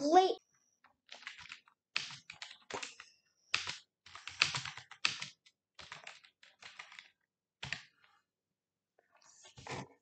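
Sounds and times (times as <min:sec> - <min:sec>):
computer keyboard typing: 0:00.8 - 0:08.2.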